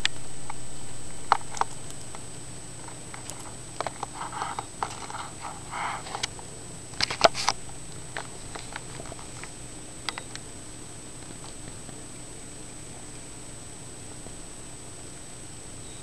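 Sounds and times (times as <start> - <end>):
hamster gnawing a seed: 2.8 - 13.4.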